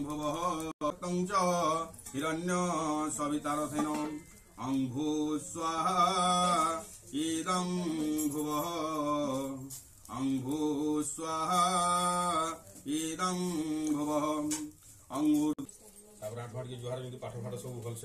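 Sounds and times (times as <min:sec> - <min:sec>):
man chanting: 0:00.0 - 0:15.6.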